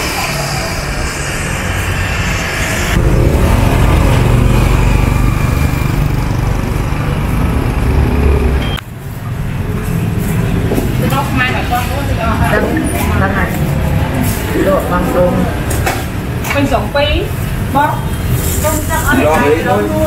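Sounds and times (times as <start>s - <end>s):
vehicle engine running: 0.0s - 15.7s
street noise: 0.0s - 20.0s.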